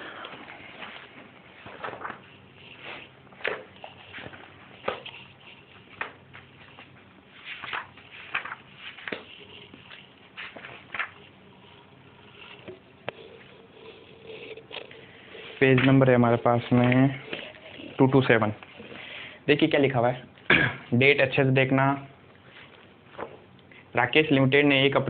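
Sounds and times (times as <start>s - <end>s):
book pages rustling: 0.3s - 19.0s, 22.4s - 23.5s.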